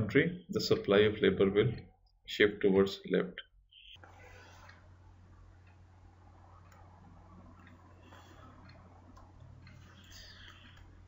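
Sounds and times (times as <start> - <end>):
low electrical hum: 0.0 - 11.0
faint clicks: 5.6 - 11.0.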